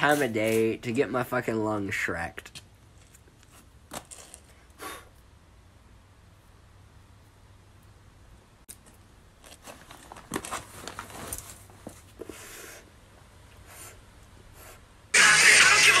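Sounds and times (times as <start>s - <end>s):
close crackling and rustling: 2.4s - 4.7s, 8.7s - 12.3s.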